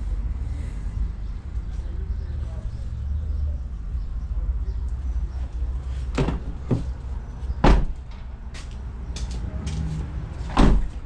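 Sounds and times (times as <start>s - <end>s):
car door thud: 6.2s - 6.9s, 7.6s - 8.0s, 10.5s - 11.0s.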